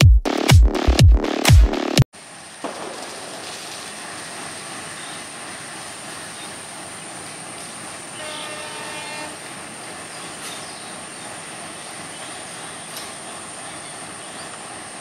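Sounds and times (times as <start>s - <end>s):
diesel locomotive horn blast: 8.1s - 9.6s.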